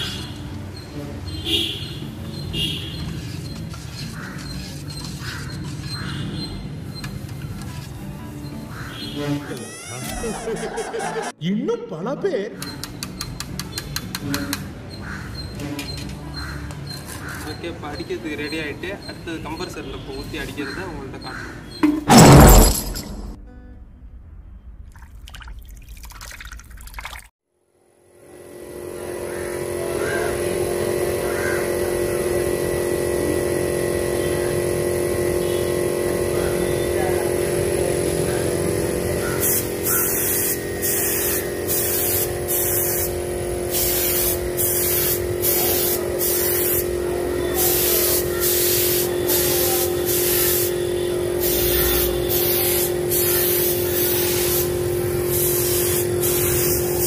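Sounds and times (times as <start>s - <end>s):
air compressor humming: 28.1s - 57.0s
spray gun hissing: 36.5s - 57.0s.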